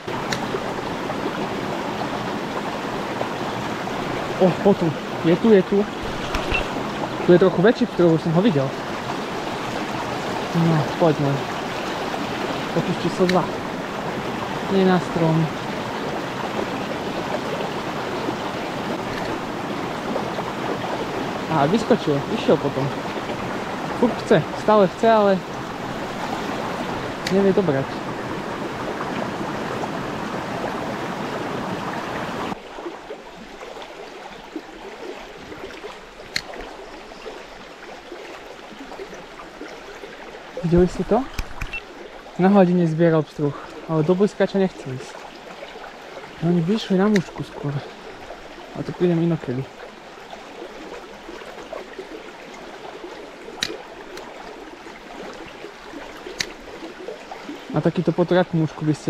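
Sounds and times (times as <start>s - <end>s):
brook water rushing: 0.0s - 59.0s
sharp click: 41.3s - 41.8s, 47.1s - 47.4s.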